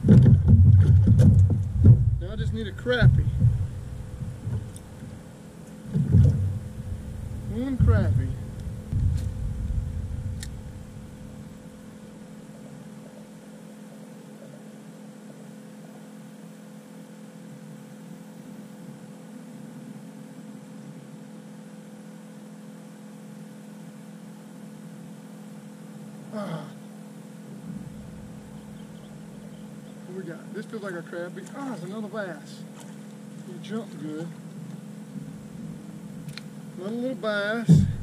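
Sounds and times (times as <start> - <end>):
low rumble: 0.0 - 12.3, 27.6 - 29.6, 37.7 - 38.0
aquarium pump humming: 0.0 - 30.9, 34.8 - 38.0.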